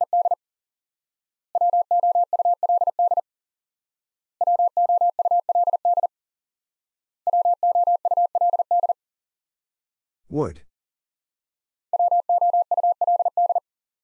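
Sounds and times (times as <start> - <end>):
morse code beep tone: 0.0 - 0.4, 1.6 - 3.2, 4.4 - 6.1, 7.3 - 9.0, 12.0 - 13.6.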